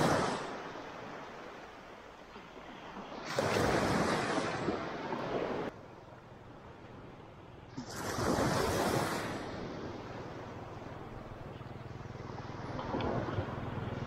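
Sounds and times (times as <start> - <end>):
wind gusts on microphone: 0.0 - 5.8, 6.5 - 11.2
surf: 0.0 - 14.0.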